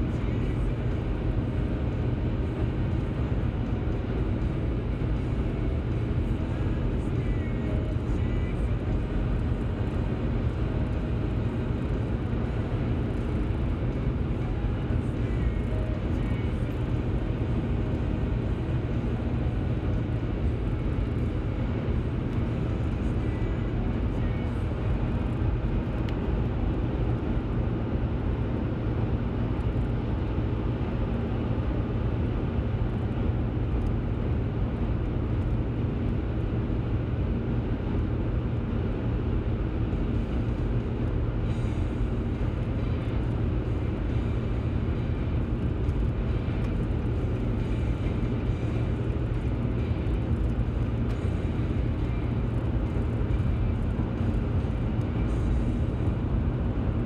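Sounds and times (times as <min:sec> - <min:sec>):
car cabin road noise: 0:00.0 - 0:57.0.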